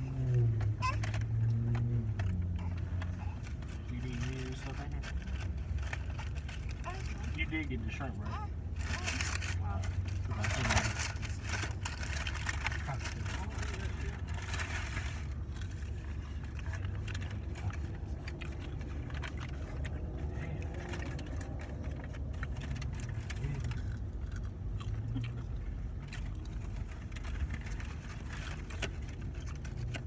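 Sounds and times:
car engine running: 0.0 - 30.0
chewing: 15.4 - 30.0.

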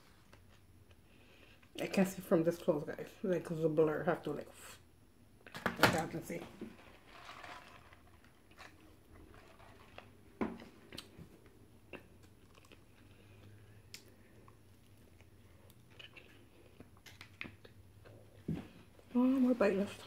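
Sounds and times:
person chewing: 8.2 - 18.9.

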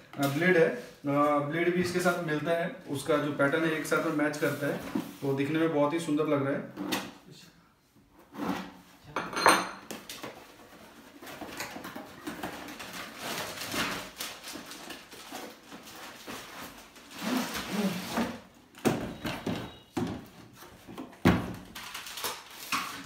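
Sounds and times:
cardboard and plastic rustling: 10.0 - 23.0.

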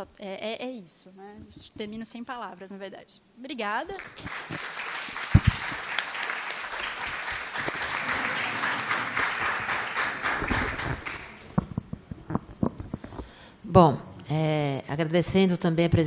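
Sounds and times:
audience applause: 4.0 - 11.5
microphone thumps: 5.3 - 5.8, 10.4 - 13.4.

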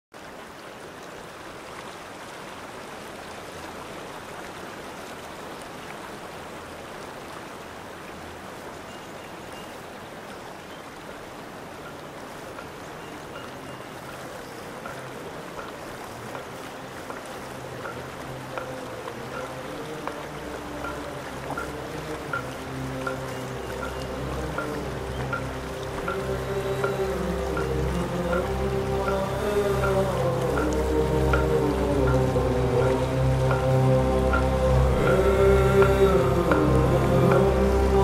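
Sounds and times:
stream water running: 0.1 - 38.0
low droning notes: 14.8 - 38.0.

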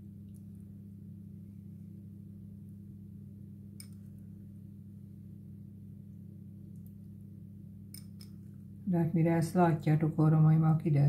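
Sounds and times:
low electrical hum: 0.0 - 11.0
faint click: 3.8 - 4.0.

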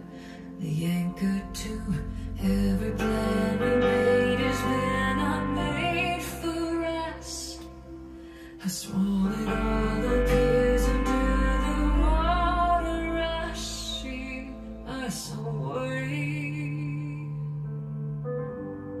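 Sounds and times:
deep bass note: 9.0 - 14.9.

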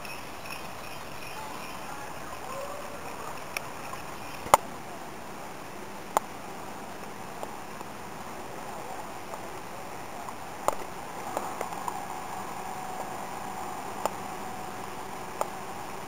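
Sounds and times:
outdoor background hiss: 0.0 - 16.0.

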